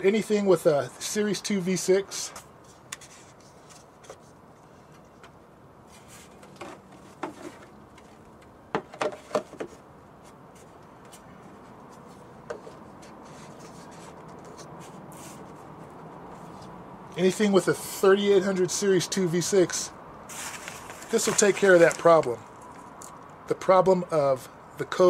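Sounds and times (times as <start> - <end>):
hands rubbing plastic cover: 20.3 - 22.3.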